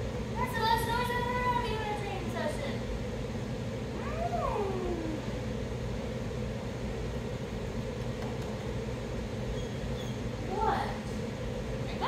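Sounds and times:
room hum and hiss: 0:00.0 - 0:12.0.

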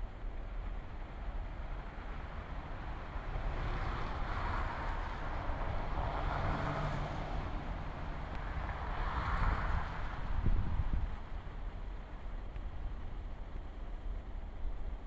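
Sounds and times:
road traffic rumble: 0:00.0 - 0:15.0
vehicles passing: 0:00.4 - 0:12.3.

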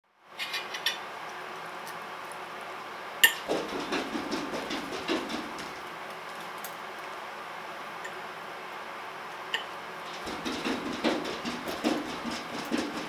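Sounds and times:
soft knocks and rustles: 0:03.4 - 0:05.9, 0:10.1 - 0:13.0.

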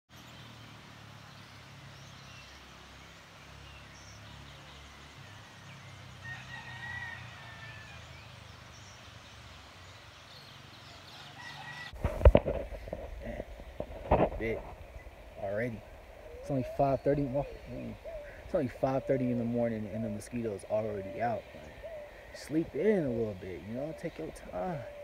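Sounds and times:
faint bird calls: 0:03.4 - 0:25.0
rooster crowing: 0:06.2 - 0:08.2, 0:11.2 - 0:12.3.

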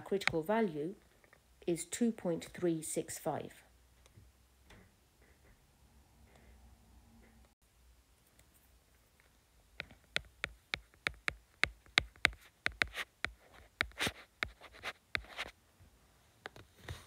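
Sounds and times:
pen tapping on hard surface: 0:09.8 - 0:14.6
pen scratchy strokes: 0:09.9 - 0:15.6.

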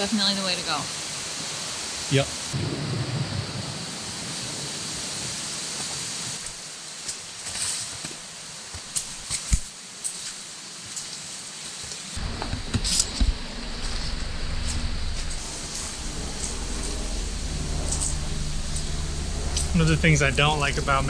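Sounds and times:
leaves brushing: 0:06.4 - 0:21.0
footsteps on stones: 0:07.0 - 0:11.2
wind rumble on microphone: 0:12.2 - 0:21.0.

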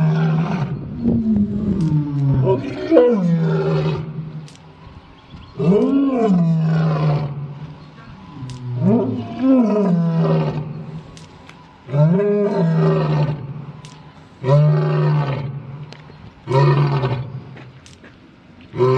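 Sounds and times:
lion roaring: 0:00.0 - 0:04.3, 0:05.6 - 0:11.0, 0:11.9 - 0:13.8, 0:14.4 - 0:15.7, 0:16.4 - 0:17.5.

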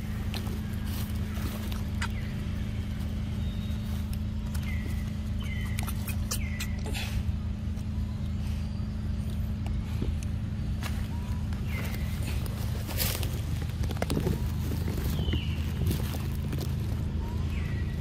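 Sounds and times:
low engine hum: 0:00.0 - 0:18.0
clicks and rustles: 0:09.3 - 0:17.2.

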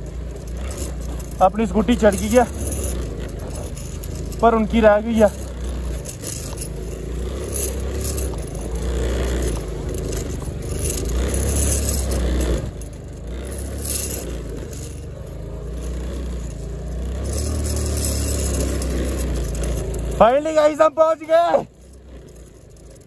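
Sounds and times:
scooter engine running: 0:00.0 - 0:23.0.

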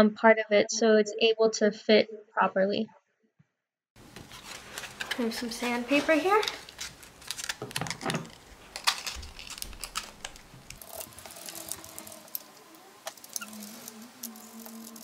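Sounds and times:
sandpaper rubbing plastic: 0:09.3 - 0:15.0.

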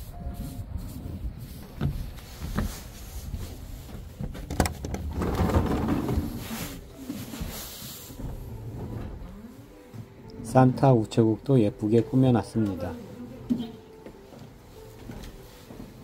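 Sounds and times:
door rustling scrape: 0:01.6 - 0:09.3.

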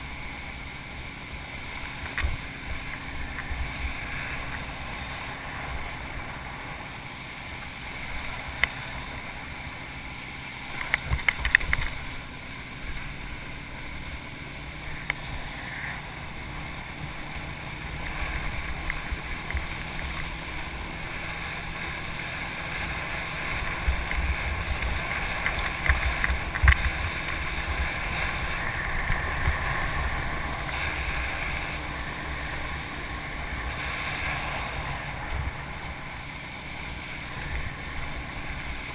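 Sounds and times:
water rushing under wakeboard: 0:00.0 - 0:38.9
wind buffeting microphone: 0:10.6 - 0:38.9
sharp knocks and splashes: 0:16.7 - 0:32.9.

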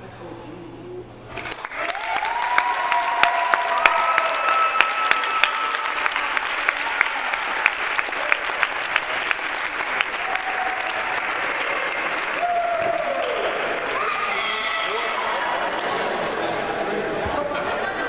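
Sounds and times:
crowd applauding: 0:01.3 - 0:17.0.

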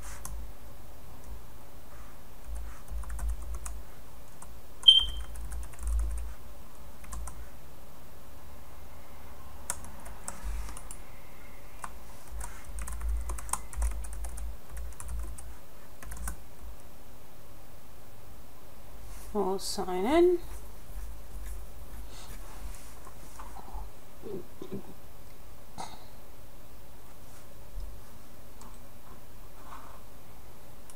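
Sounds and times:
typing on computer keyboard: 0:02.5 - 0:03.8, 0:04.8 - 0:06.3, 0:07.0 - 0:07.4, 0:11.8 - 0:16.4
short high beep: 0:04.8 - 0:05.3.

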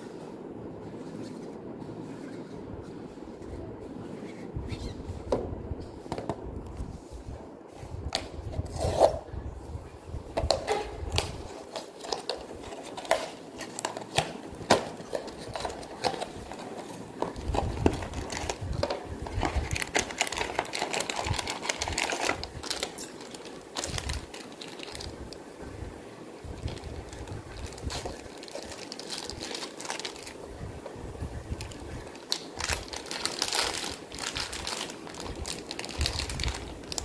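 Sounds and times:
foil bag crinkling: 0:11.5 - 0:25.4, 0:26.4 - 0:30.4, 0:31.5 - 0:37.0.

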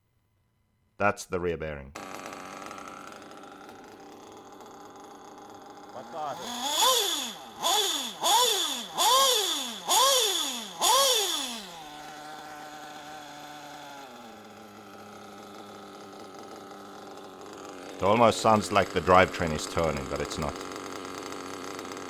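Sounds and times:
small engine revving and idling: 0:02.0 - 0:22.0.

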